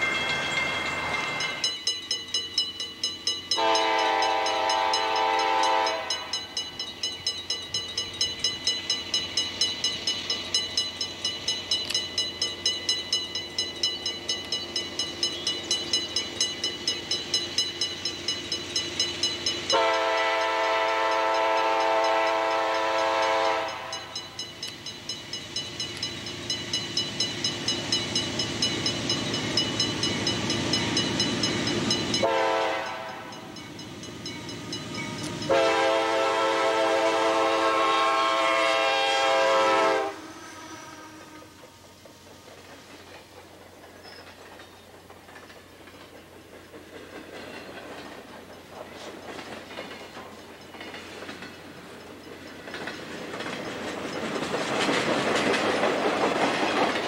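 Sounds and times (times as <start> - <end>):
locomotive air horn: 3.6 - 6.3, 19.7 - 24.1, 32.2 - 33.4, 35.4 - 41.9.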